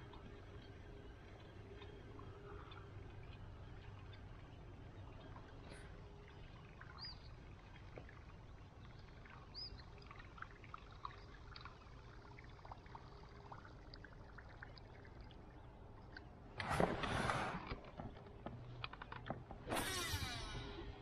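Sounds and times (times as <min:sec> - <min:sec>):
small drips: 0:00.0 - 0:16.6.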